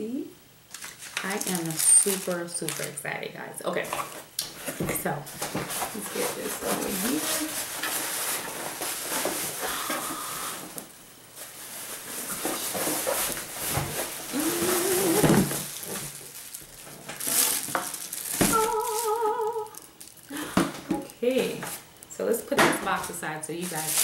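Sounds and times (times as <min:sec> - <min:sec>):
plastic packaging crinkling: 0:00.7 - 0:03.1, 0:03.8 - 0:22.0, 0:22.8 - 0:24.0
cardboard scraping: 0:04.0 - 0:10.8, 0:11.4 - 0:19.1
person humming: 0:14.3 - 0:15.6, 0:18.4 - 0:21.1.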